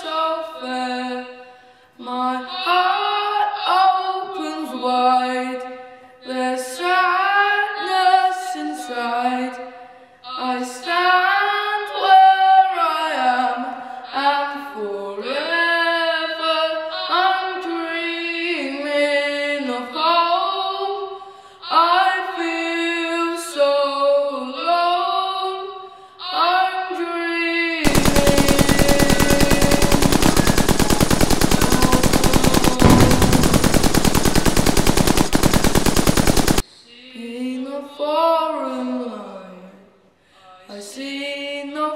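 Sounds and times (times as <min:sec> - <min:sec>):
rapid machine-gun fire: 0:27.9 - 0:36.6.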